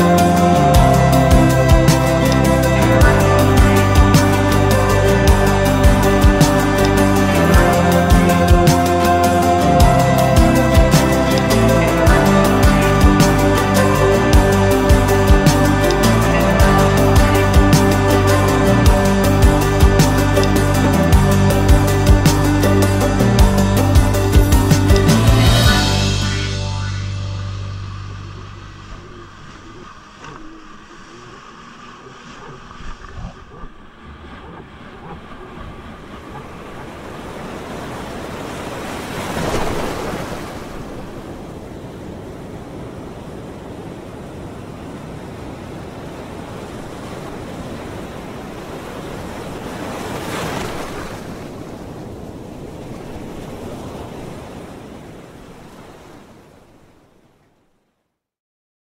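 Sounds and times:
steady wash of waves: 0.0 - 26.2, 26.8 - 57.5
waves breaking loudly: 28.2 - 57.2.

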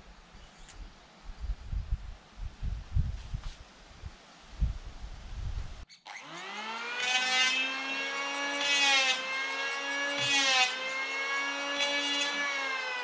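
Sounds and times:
small motor whirring: 5.9 - 13.0.

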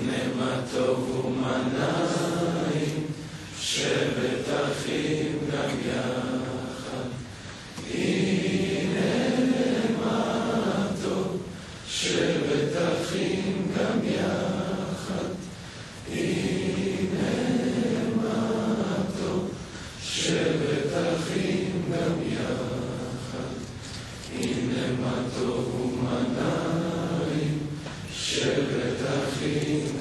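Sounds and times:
group of men singing: 0.0 - 7.3, 24.3 - 30.0.

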